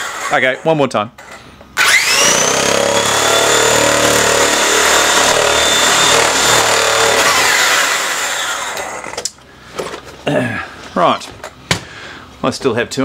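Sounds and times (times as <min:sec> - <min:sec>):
toy truck electric motor whine: 0:01.8 - 0:09.2.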